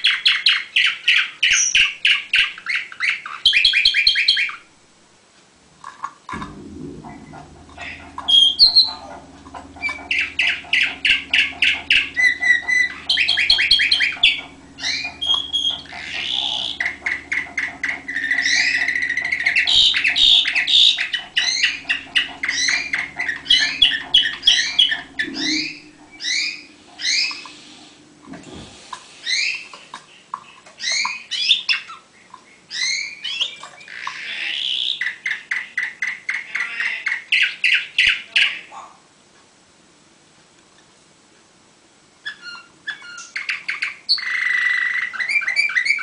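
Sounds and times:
low steady hum: 4.7 - 30.4
canary singing: 7.7 - 28.1.

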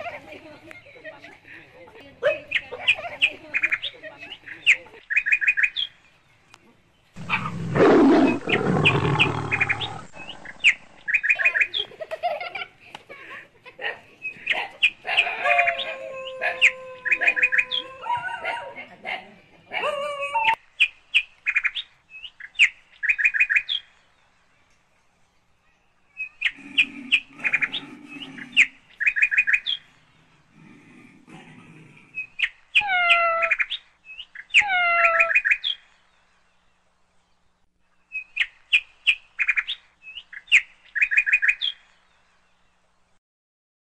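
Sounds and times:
birds chirping rapidly: 2.3 - 12.4, 20.6 - 43.2.

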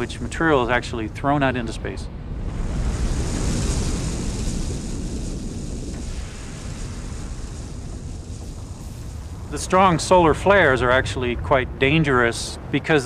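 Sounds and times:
deep rumble: 0.0 - 12.8
hiss: 2.5 - 9.6.

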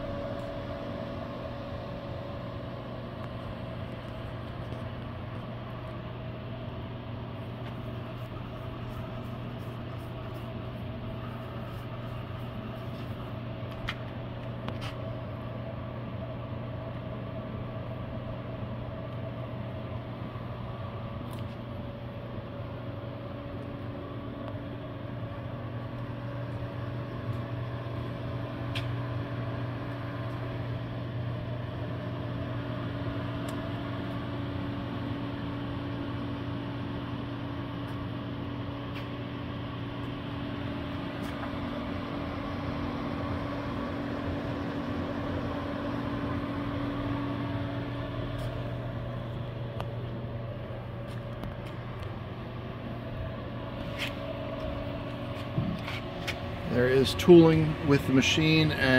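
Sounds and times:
lathe humming: 0.0 - 21.8, 22.4 - 58.9
lathe whine: 0.0 - 58.9.

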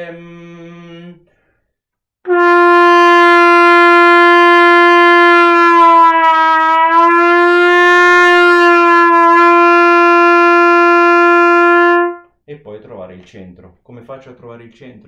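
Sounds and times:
trumpet sustained note: 2.3 - 12.3.

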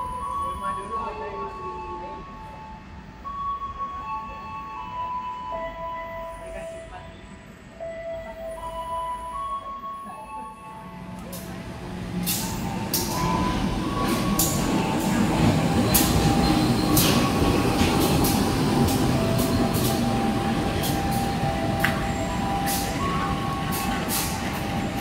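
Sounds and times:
train rolling rumble: 0.0 - 25.0
train wheels clacking over rail joints: 12.2 - 20.2.

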